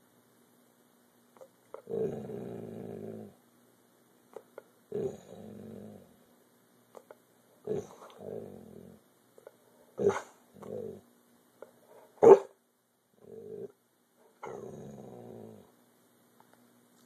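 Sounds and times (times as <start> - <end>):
dog growling: 1.7 - 3.4, 4.9 - 6.2, 7.6 - 9.0, 10.0 - 11.1, 13.2 - 13.8, 14.4 - 15.8
dog barking: 10.0 - 10.4, 12.2 - 12.6.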